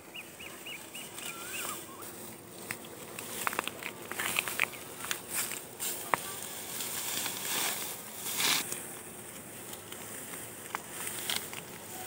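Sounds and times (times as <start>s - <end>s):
dry wheat stalks rustling: 0.0s - 12.0s
stalks snapping: 2.3s - 6.4s, 9.6s - 11.9s.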